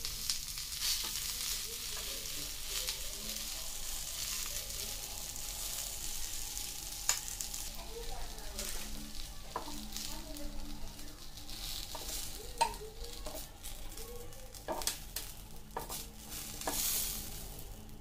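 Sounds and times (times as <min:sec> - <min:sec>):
onions sizzling on grill: 0:00.0 - 0:18.0
knife scraping and tapping metal: 0:15.8 - 0:16.0.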